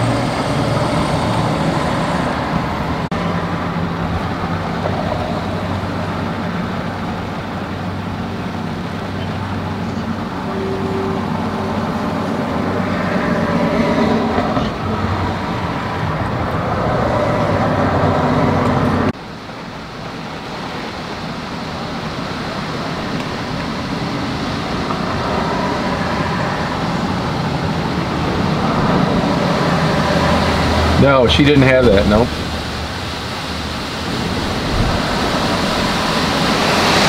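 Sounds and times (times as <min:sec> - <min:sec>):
storm wind and rain on a car: 0:00.0 - 0:10.5, 0:11.4 - 0:37.0
low hum: 0:00.0 - 0:19.2.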